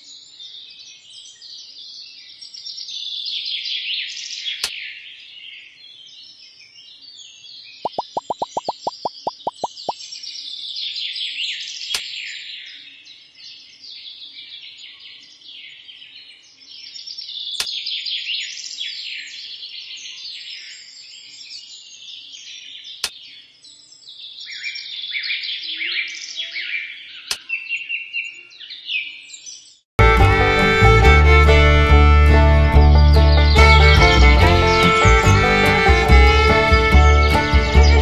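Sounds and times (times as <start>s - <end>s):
small birds chirping: 4.1s - 29.8s
sharp clicks: 7.9s - 10.0s.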